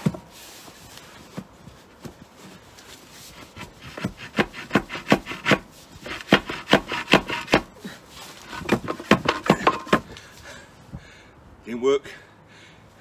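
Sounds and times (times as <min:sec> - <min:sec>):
wooden ram knocking in steel tube: 0:08.6 - 0:10.1.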